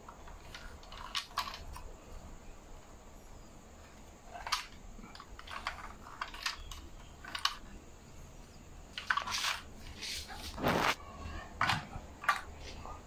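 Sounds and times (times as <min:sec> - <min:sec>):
toy car clicks and knocks: 0:00.0 - 0:01.9, 0:04.3 - 0:07.8, 0:08.9 - 0:09.7, 0:11.6 - 0:12.7.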